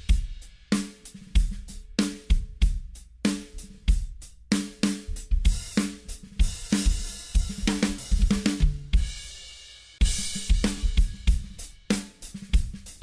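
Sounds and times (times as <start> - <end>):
drum-heavy music: 0.0 - 13.0.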